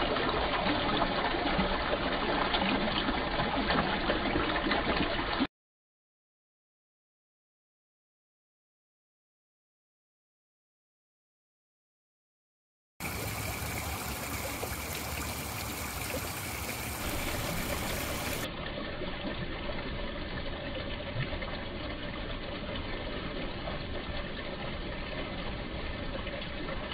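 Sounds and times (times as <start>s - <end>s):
waterfall splashing over rocks: 13.0s - 18.5s.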